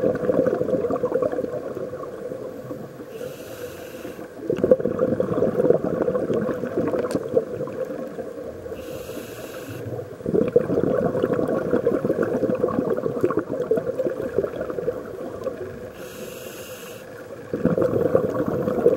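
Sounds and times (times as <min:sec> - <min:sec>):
bubbling exhalation underwater: 0:00.0 - 0:02.8, 0:04.4 - 0:08.3, 0:10.0 - 0:16.0, 0:17.4 - 0:18.9
hissing regulator inhalation: 0:03.1 - 0:04.4, 0:08.8 - 0:10.0, 0:15.9 - 0:17.2.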